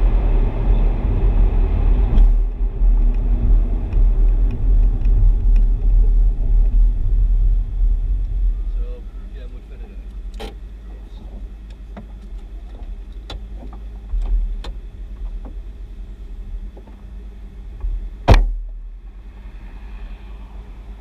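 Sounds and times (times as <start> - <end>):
car engine rumble: 0.0 - 21.0
loud thump: 17.8 - 18.8.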